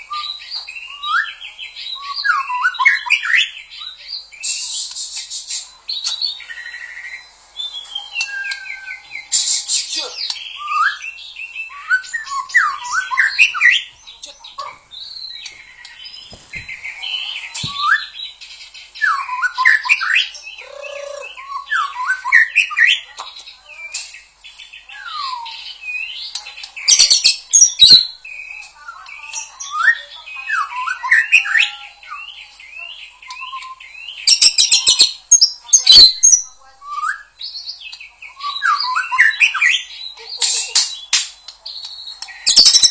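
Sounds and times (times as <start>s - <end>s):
bird singing whistled song: 0.0s - 23.1s, 23.7s - 40.2s, 40.8s - 42.9s
harsh bird chattering: 20.2s - 21.5s.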